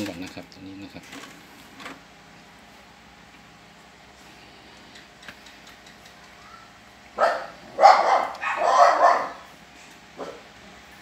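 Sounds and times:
dog barking loudly: 7.2s - 9.5s, 10.2s - 10.5s.

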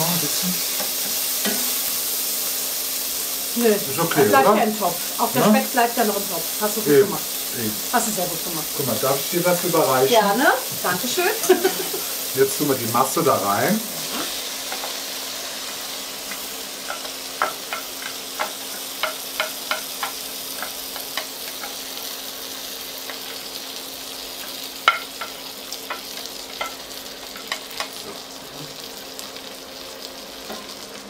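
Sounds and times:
bacon sizzling in a pot: 0.0s - 31.0s
spatula tapping bowl and pot: 16.8s - 21.8s.

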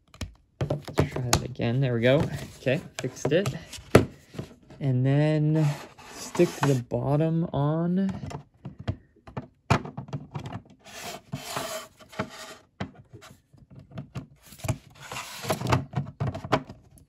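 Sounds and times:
plastic scraping on plastic: 0.6s - 4.8s, 5.5s - 6.9s, 10.0s - 17.0s.

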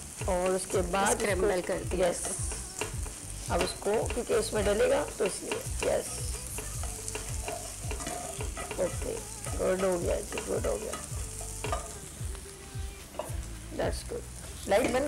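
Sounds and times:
spatula scraping a frying pan: 0.0s - 12.1s
oil sizzling: 0.0s - 15.0s.

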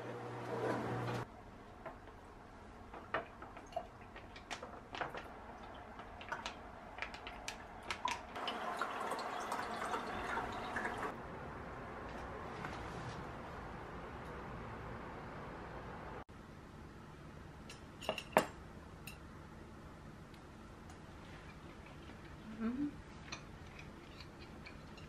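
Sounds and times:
juice pouring and dripping: 3.2s - 11.2s.

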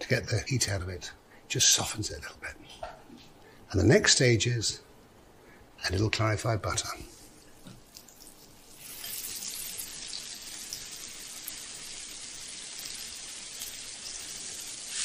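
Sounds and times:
steaks sizzling in a frying pan: 8.6s - 15.0s.

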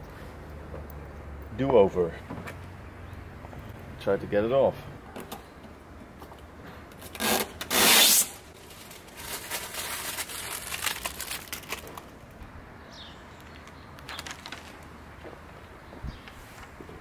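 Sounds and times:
film rubbing and rustling: 7.0s - 12.2s, 13.6s - 15.0s
film ripping off glass: 7.1s - 12.1s.

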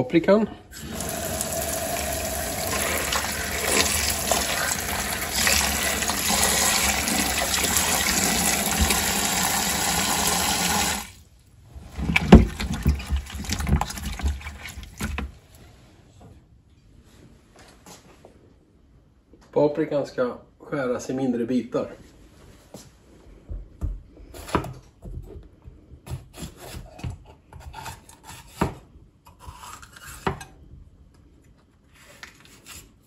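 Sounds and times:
tap water splashing on vegetables: 2.6s - 11.1s.

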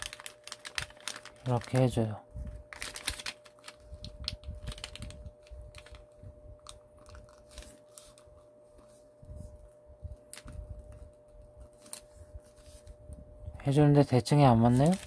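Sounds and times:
paper folding and crinkling: 0.0s - 13.0s, 14.4s - 15.0s
faint steady hum: 0.0s - 15.0s.

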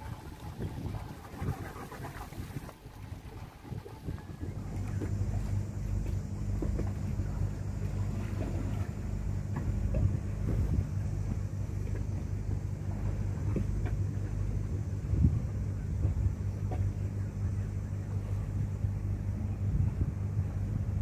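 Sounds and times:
knocks and splashes: 0.0s - 15.3s
water rushing past hull: 0.0s - 17.1s
boat engine humming: 0.0s - 21.0s.

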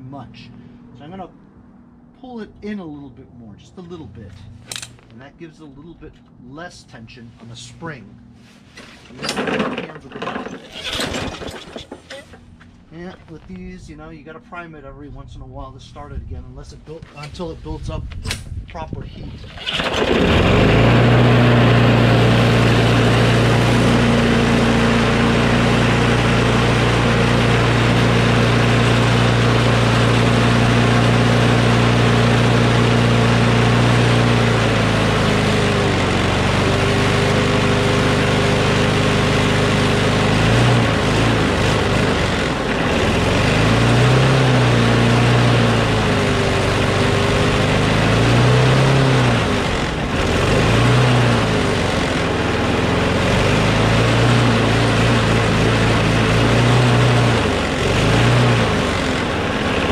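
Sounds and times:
lawn mower engine running: 8.9s - 12.8s, 19.4s - 59.9s.

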